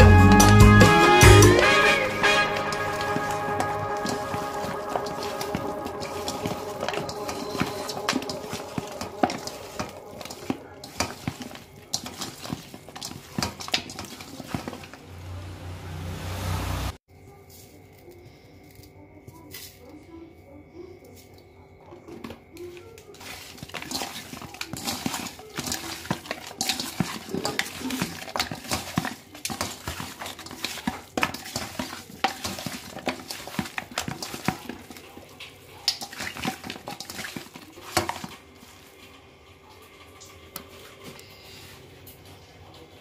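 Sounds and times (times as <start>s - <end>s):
food mixed in steel bowl clattering: 0.0s - 15.8s, 22.0s - 42.9s.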